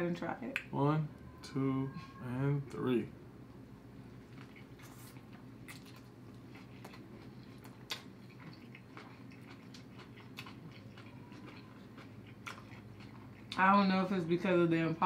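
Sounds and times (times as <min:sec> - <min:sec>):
low steady hum: 0:00.0 - 0:15.0
people chewing food: 0:04.0 - 0:14.6.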